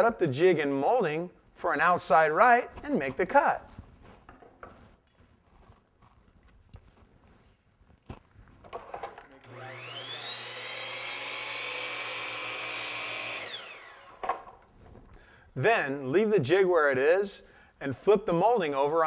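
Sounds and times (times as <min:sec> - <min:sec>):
miter saw motor whining: 0:09.1 - 0:14.3.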